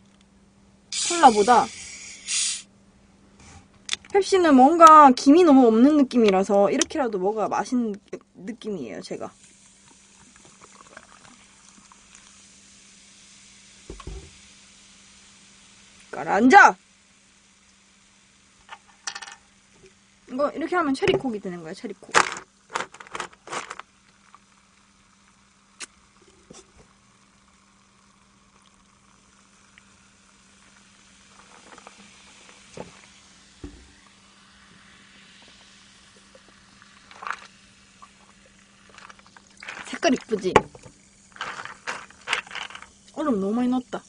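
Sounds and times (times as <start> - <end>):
faint hiss: 0.0 - 44.0
faint steady hum: 0.0 - 44.0
person sipping: 1.0 - 2.6, 25.8 - 26.9, 30.6 - 40.3
cola fizzing over ice: 9.0 - 43.9
bottle and ice knocks: 13.9 - 14.3, 40.6 - 42.8.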